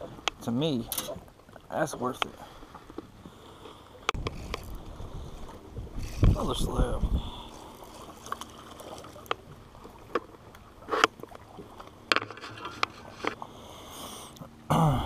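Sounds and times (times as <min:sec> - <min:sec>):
water: 0:00.0 - 0:15.0
wind noise: 0:04.2 - 0:07.7
fishing gear clicks and knocks: 0:12.1 - 0:13.4.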